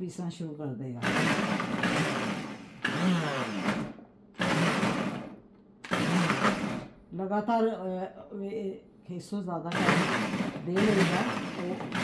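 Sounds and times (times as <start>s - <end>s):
blender motor pulsing: 1.0s - 7.0s, 9.7s - 12.0s.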